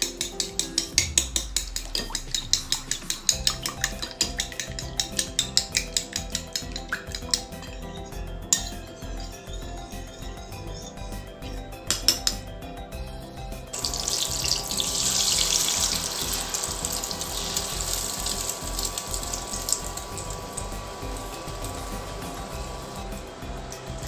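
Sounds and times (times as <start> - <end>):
spoon clicking against bowl: 0.0 - 7.8
egg sizzling in frying pan: 0.7 - 7.8, 13.8 - 24.0.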